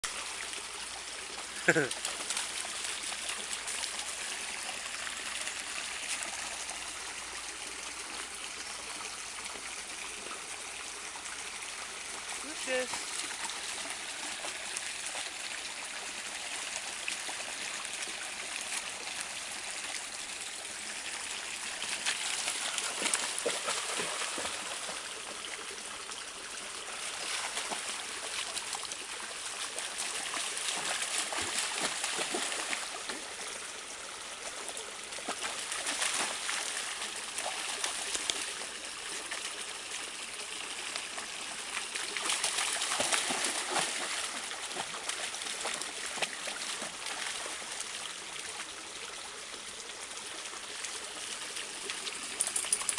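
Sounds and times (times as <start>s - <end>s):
stream trickling over rock: 0.0s - 52.9s
dog paws splashing in water: 21.8s - 25.0s, 27.0s - 29.0s, 29.6s - 33.2s, 34.5s - 38.4s, 41.8s - 47.7s, 52.2s - 52.9s.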